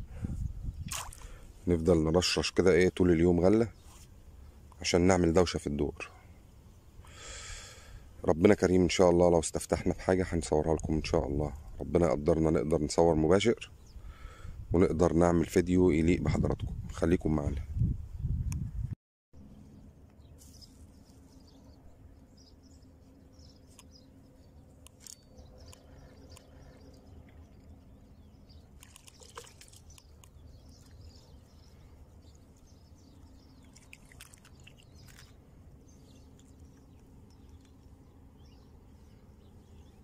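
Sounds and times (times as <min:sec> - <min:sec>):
light splash in water: 0:00.8 - 0:01.4, 0:28.8 - 0:31.0, 0:33.6 - 0:35.4
small clicks and rustles: 0:28.8 - 0:31.0, 0:33.7 - 0:35.4, 0:36.3 - 0:37.9.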